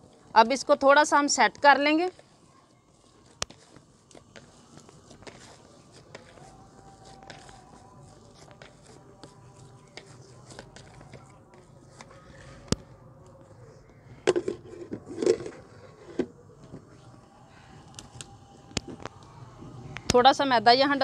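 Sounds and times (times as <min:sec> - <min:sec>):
hands pressing dough: 0:03.0 - 0:12.8.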